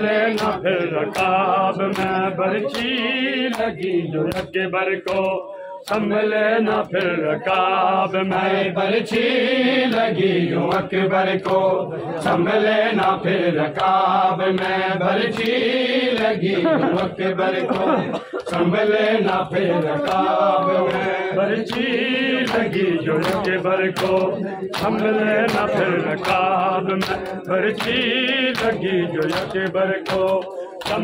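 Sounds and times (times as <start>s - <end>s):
men chanting a lament: 0.0s - 31.0s.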